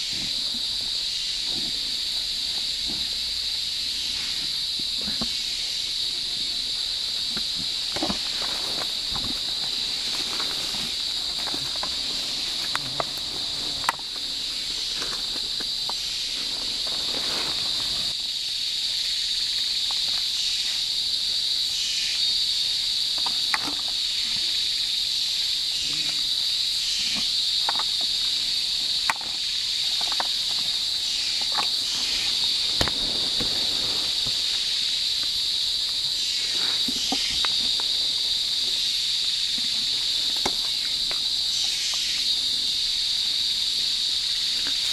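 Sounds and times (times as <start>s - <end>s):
high-pitched insect drone: 0.0s - 44.9s
soft rustles: 8.1s - 18.2s.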